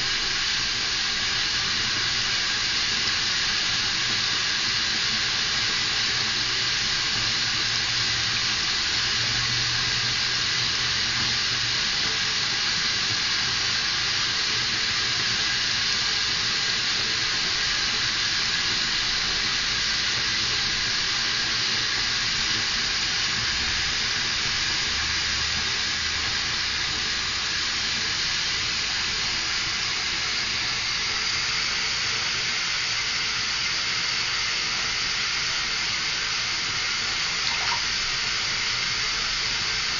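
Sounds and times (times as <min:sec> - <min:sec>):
water running into bathtub: 0:37.2 - 0:38.2.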